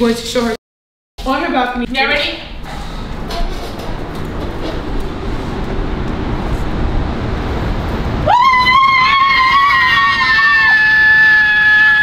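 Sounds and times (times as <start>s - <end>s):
low rumble of city noise: 1.2s - 12.0s.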